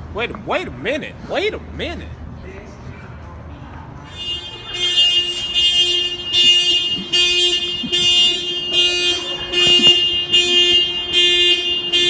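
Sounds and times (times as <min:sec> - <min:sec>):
car horn alarm blasts: 0:04.1 - 0:12.0.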